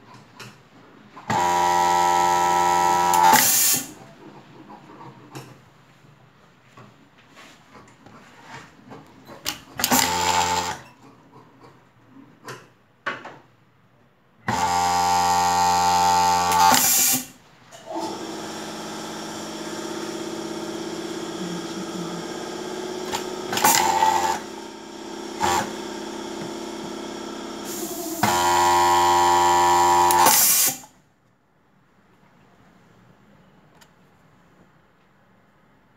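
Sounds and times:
sewing machine motor whine: 1.3 - 3.9, 9.8 - 10.8, 14.5 - 17.3, 17.9 - 30.9.

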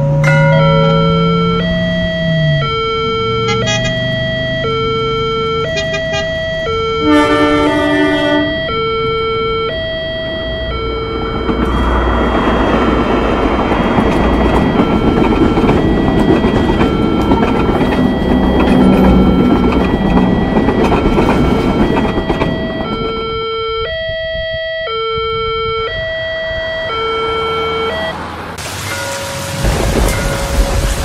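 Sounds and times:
railroad crossing bell: 0.0 - 28.2, 28.8 - 31.0
freight train rumble and clatter: 7.0 - 23.5, 28.6 - 31.0
rain hissing: 28.6 - 31.0.

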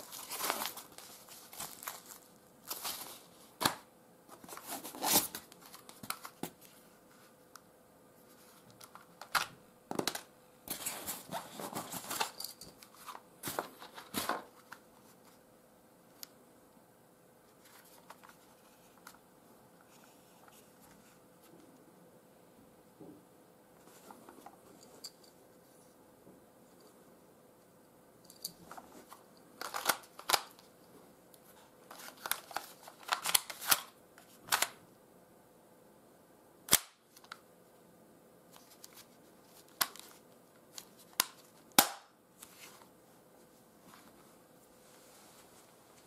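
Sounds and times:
plastic-wrapped papers rustling: 0.0 - 3.8.

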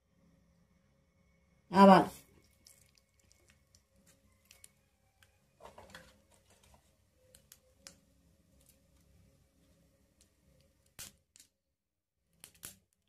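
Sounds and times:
seeds popping in hot oil: 2.3 - 6.3, 6.9 - 11.6, 12.3 - 13.0.

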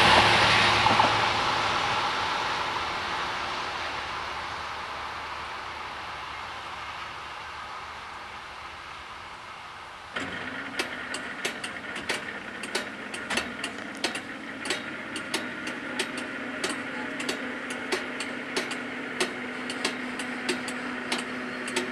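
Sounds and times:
warning equipment hum: 10.1 - 21.9.

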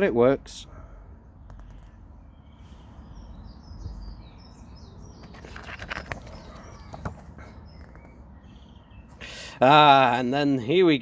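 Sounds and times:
small birds chirping: 0.7 - 11.0
handling clicks and rustles: 5.1 - 8.3.

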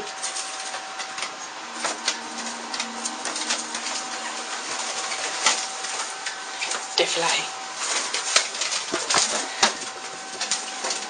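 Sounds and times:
birds flapping wings: 0.0 - 11.0
steady faint hum: 0.0 - 11.0
claws scrabbling on bathtub: 4.3 - 11.0.

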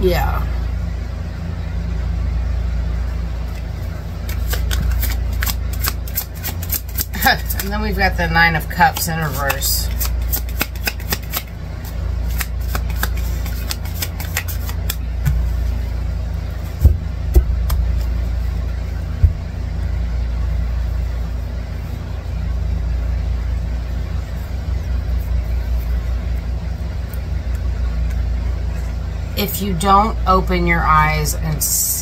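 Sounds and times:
cards clicking: 3.5 - 7.8, 8.7 - 11.5, 12.3 - 15.4
low engine rumble: 11.4 - 32.0
sharp thumps: 16.8 - 18.2, 19.1 - 19.7.

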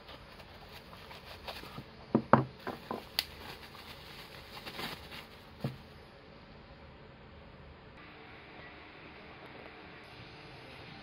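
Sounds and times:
bubble wrap rustling and crinkling: 0.0 - 1.9, 2.6 - 5.8
sharp crackles and taps: 2.9 - 3.3.

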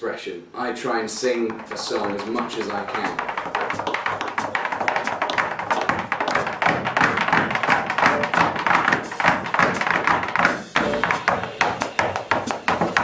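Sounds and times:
tap shoes on wooden board: 1.1 - 13.0.

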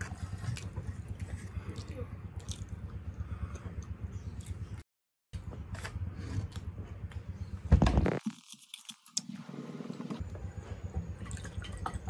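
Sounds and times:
chewing: 0.0 - 4.8.

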